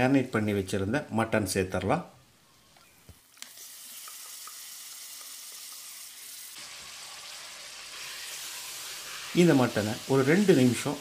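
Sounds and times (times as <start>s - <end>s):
meat sizzling in hot fat: 3.2s - 11.0s.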